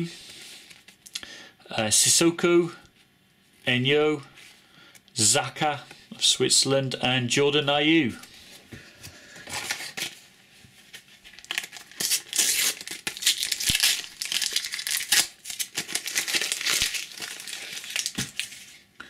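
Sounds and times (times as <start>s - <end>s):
packet tearing and crinkling: 11.3s - 18.8s.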